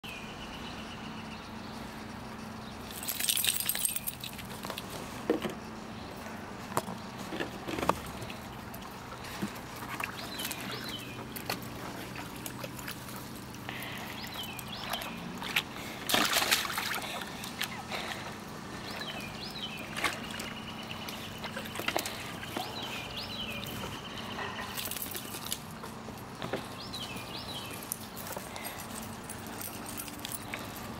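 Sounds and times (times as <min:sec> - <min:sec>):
low steady hum: 0:00.1 - 0:30.9
puppy splashing water: 0:07.9 - 0:23.7
small splashes and taps: 0:14.3 - 0:17.8.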